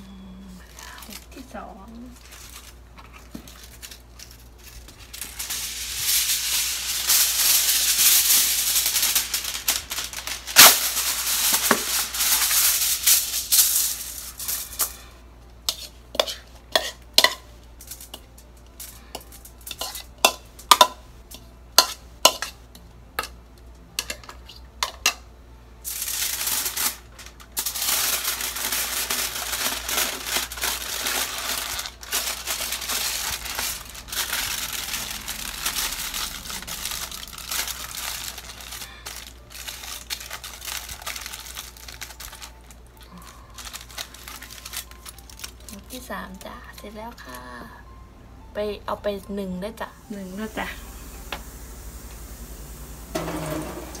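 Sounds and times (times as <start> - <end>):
aluminium foil crinkling: 0.5 - 20.8, 25.8 - 47.6.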